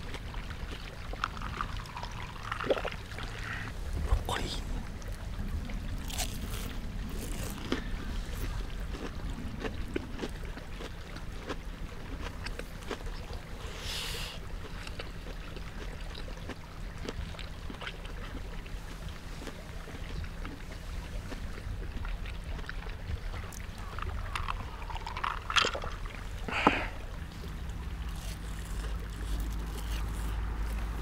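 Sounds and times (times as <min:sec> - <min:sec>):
crunchy chewing: 0:00.0 - 0:04.5, 0:06.0 - 0:31.0
steady low rumble: 0:00.1 - 0:31.0
breath out: 0:26.5 - 0:27.0.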